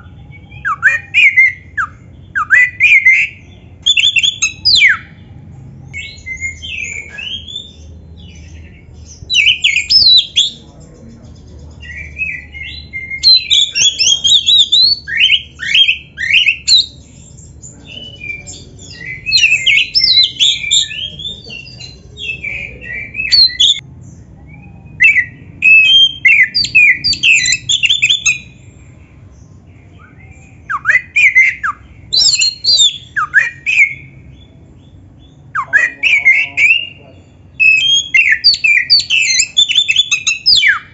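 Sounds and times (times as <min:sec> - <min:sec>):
bird singing varied whistles: 0:00.0 - 0:05.1, 0:09.3 - 0:10.6, 0:24.5 - 0:28.6, 0:30.0 - 0:34.2, 0:37.6 - 0:40.9.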